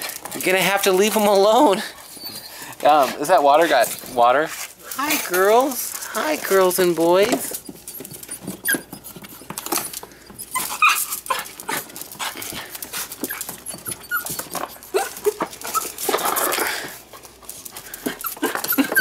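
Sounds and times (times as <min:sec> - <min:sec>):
puppies whimpering and yipping: 0:00.8 - 0:03.9, 0:06.5 - 0:11.9, 0:13.0 - 0:16.8, 0:17.9 - 0:19.0.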